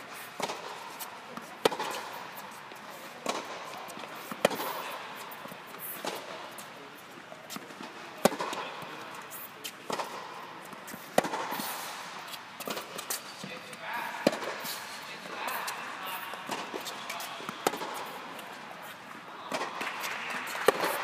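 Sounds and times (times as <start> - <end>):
rackets striking tennis ball: 0.0 - 21.0
ball bouncing on hard court: 0.4 - 2.1, 3.2 - 5.3, 7.5 - 8.9, 9.9 - 10.3, 10.9 - 11.7, 16.5 - 18.2, 19.5 - 21.0.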